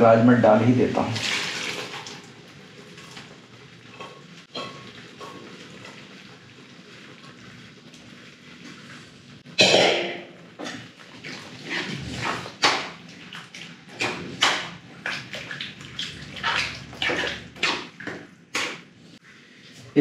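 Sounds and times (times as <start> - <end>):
curry sloshing: 1.1 - 2.4, 10.7 - 18.9.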